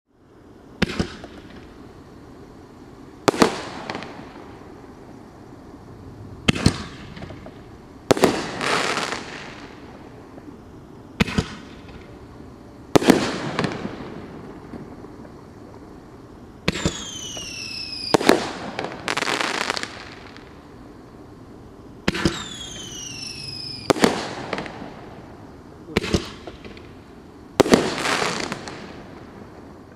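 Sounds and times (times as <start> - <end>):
firework trailing hiss: 0.1 - 29.9
firework bangs: 0.8 - 1.8, 3.2 - 4.8, 6.3 - 10.6, 11.2 - 12.2, 12.9 - 15.9, 16.6 - 20.5, 22.0 - 29.7
descending firework whistle: 16.6 - 20.5, 22.0 - 25.0.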